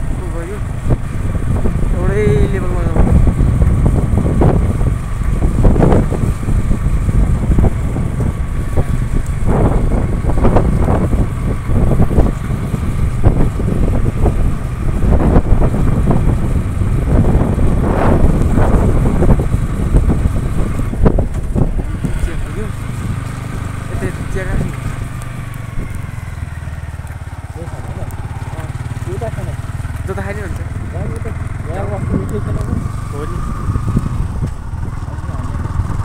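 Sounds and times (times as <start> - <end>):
vehicle low rumble: 0.0 - 36.0
wind rushing over microphone: 0.0 - 36.0.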